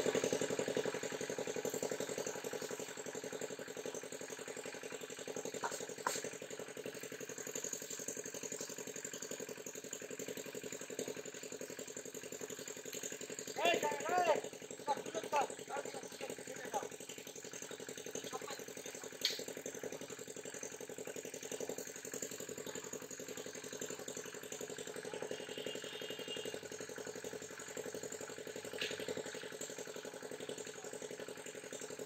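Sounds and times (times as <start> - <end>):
small engine idling with rattle: 0.0 - 32.0
sharp click: 19.2 - 19.5.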